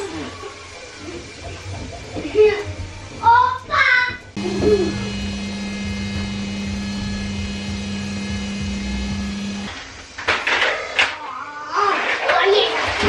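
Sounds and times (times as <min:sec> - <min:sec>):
stand mixer motor running: 0:04.4 - 0:09.7.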